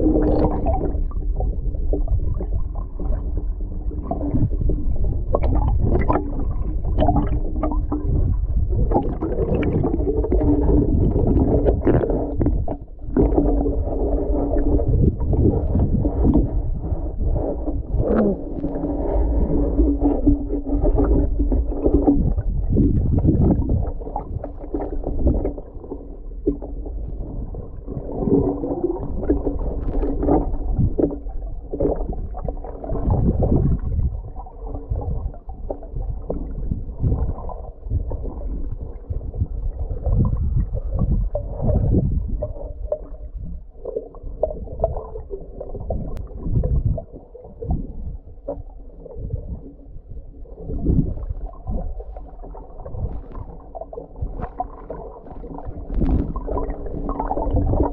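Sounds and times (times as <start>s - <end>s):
underwater rumbling and sloshing: 0.0s - 57.9s.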